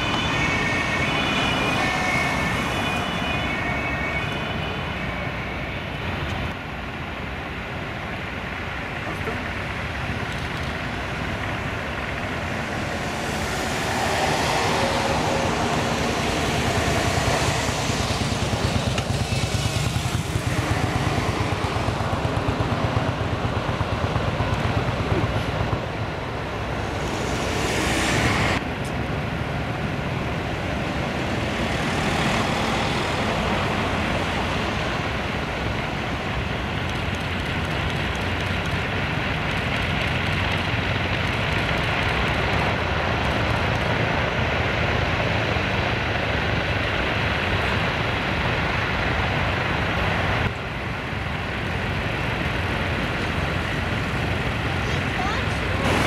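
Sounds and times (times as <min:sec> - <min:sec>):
radial piston engines rumbling: 0:00.0 - 0:56.0.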